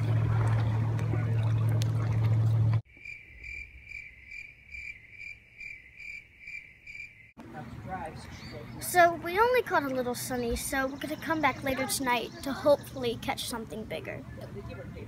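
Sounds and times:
low steady hum: 0.0s - 2.8s
cricket chirping: 2.9s - 7.4s.

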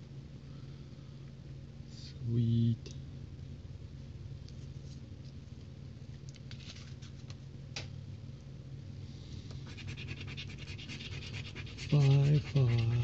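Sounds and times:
steady low hum: 0.0s - 13.0s
scratching lottery ticket: 9.6s - 13.0s.

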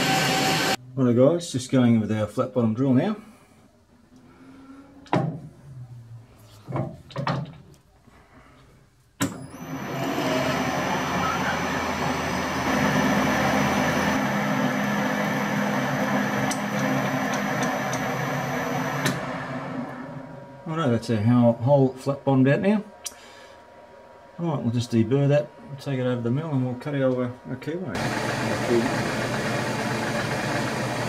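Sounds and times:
metal lathe whining: 0.0s - 0.8s, 9.4s - 22.6s, 28.0s - 31.0s.

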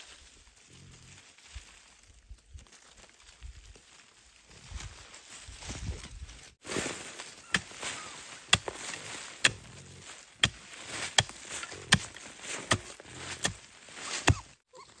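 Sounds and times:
rustling of dry leaves: 0.0s - 15.0s
hoe chopping into earth: 7.4s - 9.7s, 10.4s - 14.5s.

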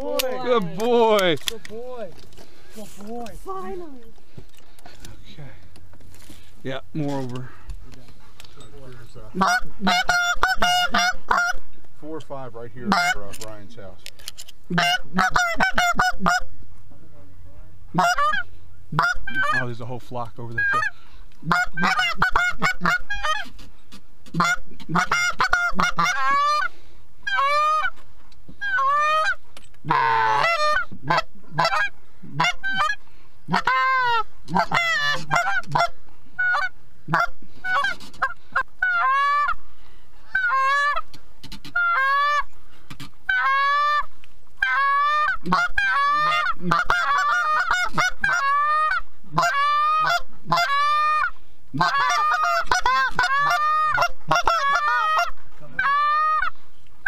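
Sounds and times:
goose call honks: 9.4s - 11.6s, 14.7s - 16.5s, 17.9s - 19.7s, 20.5s - 23.5s, 24.3s - 26.7s, 28.6s - 39.6s, 43.3s - 56.6s.

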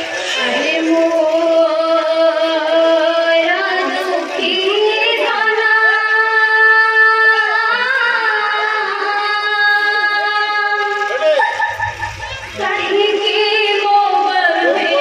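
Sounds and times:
musical accompaniment: 11.0s - 15.0s.

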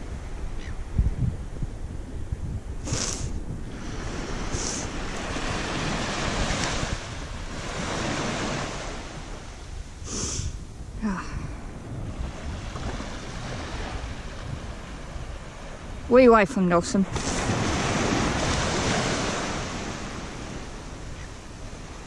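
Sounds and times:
wind buffeting microphone: 0.0s - 22.0s
small waves washing on sand: 2.8s - 10.6s, 11.6s - 22.0s.

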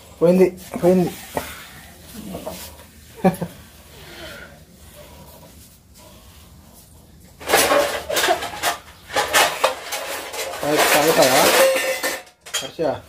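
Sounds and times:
steel pots and plates clattering: 7.4s - 13.0s.

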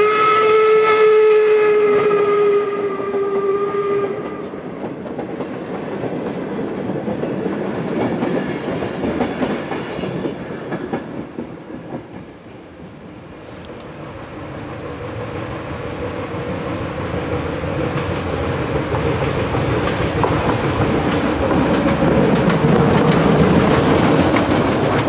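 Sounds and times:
steam locomotive whistle: 0.0s - 4.7s
coaches clattering on rails: 4.3s - 12.5s, 17.2s - 25.0s.

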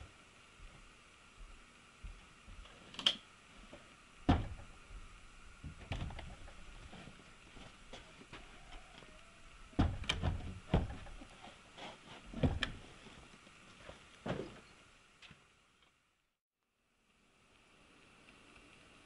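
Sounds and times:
dull thumps and knocks: 4.3s - 4.8s, 5.6s - 7.1s, 9.8s - 11.3s, 12.3s - 12.8s.

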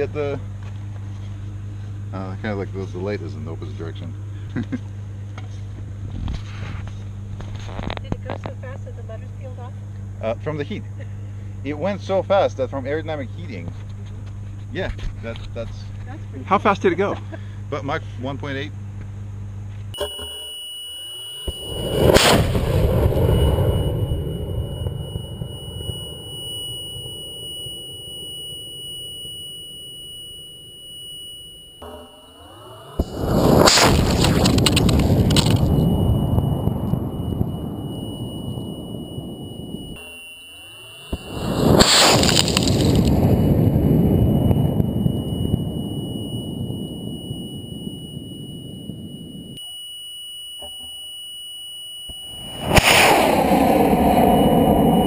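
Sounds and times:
high-pitched electronic whine: 0.0s - 4.4s, 5.0s - 18.7s, 19.9s - 55.0s
rocket motor rumble: 0.0s - 17.8s, 21.2s - 49.6s, 52.1s - 55.0s
rocket motor blast and roar: 21.5s - 26.3s, 32.8s - 40.0s, 41.1s - 49.0s, 52.3s - 55.0s
rushing noise: 41.1s - 46.1s, 52.3s - 55.0s.

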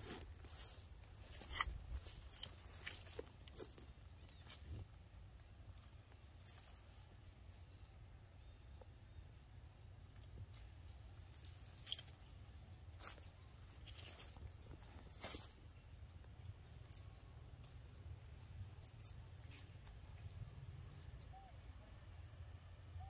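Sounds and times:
plant stems crackling and snapping: 0.5s - 4.8s, 11.3s - 12.3s.

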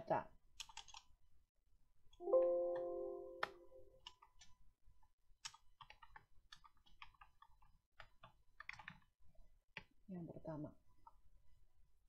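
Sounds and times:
keyboard typing: 0.6s - 1.0s
computer alert chime: 2.2s - 3.9s.

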